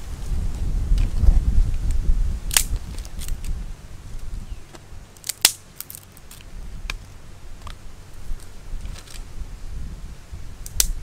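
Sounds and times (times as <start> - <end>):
wind rumble on microphone: 0.0 - 5.1, 6.2 - 11.0
dry twigs snapping: 2.5 - 3.6, 4.7 - 7.8, 10.6 - 11.0.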